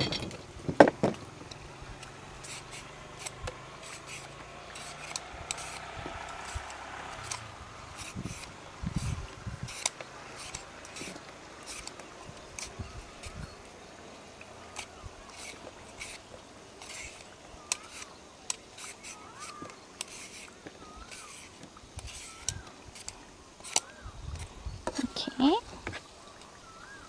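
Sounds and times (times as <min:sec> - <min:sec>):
mango shredding scrapes: 0:02.4 - 0:11.9.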